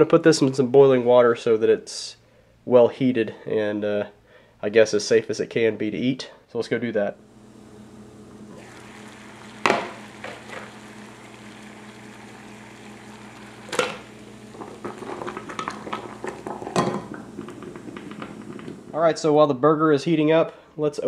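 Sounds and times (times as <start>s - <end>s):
water boiling in a pot: 7.2s - 19.3s
metal clanks against a pot: 14.6s - 18.6s.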